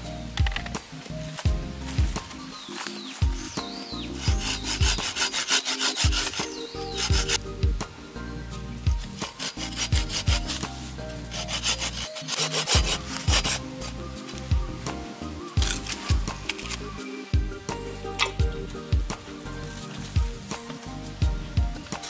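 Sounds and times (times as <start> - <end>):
hand saw cutting branch: 3.6 - 7.4, 9.1 - 14.0, 15.6 - 16.9.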